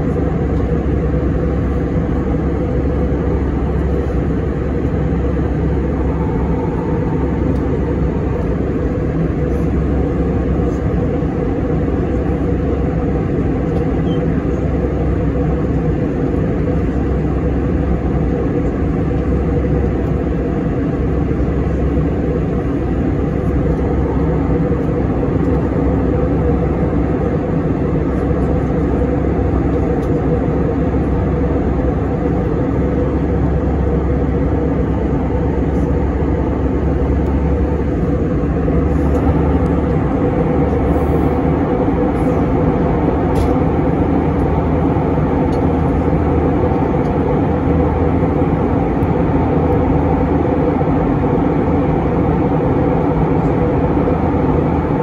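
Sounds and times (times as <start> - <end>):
jet engine cabin drone: 0.0 - 55.0.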